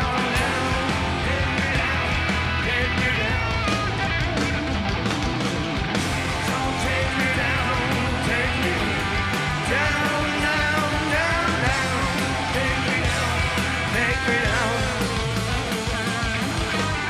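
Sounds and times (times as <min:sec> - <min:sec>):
man singing lead vocals: 0:00.0 - 0:04.3, 0:06.2 - 0:17.0
live rock band playing: 0:00.0 - 0:17.0.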